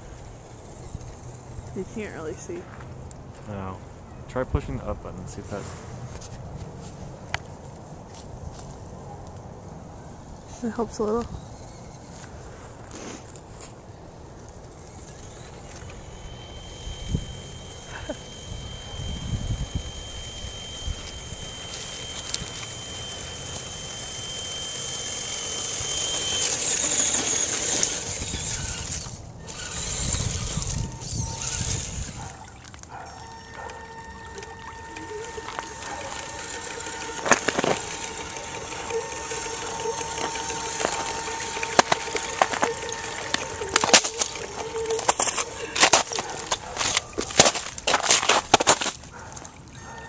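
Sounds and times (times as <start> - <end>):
toy car motor whining: 0.0 - 2.6, 10.6 - 13.4, 14.1 - 49.0
wind noise: 18.4 - 21.6, 27.8 - 32.5
water splashing: 30.6 - 50.0.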